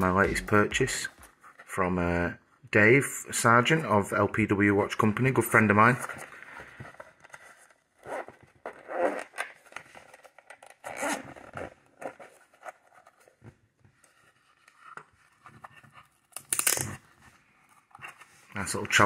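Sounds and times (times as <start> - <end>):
zipper being pulled open: 8.0 - 9.5, 10.8 - 12.8.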